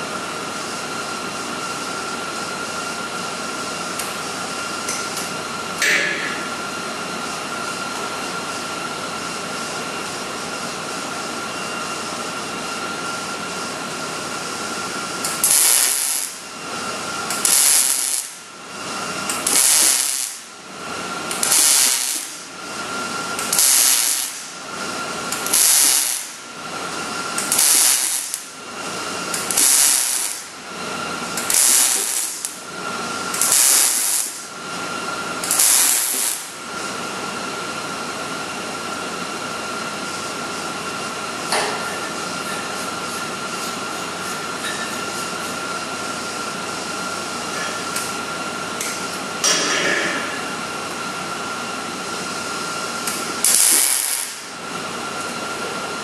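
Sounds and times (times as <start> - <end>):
steady hum with high whine: 0.0 - 56.0
welding arc crackling and hissing: 14.3 - 37.2, 40.1 - 56.0.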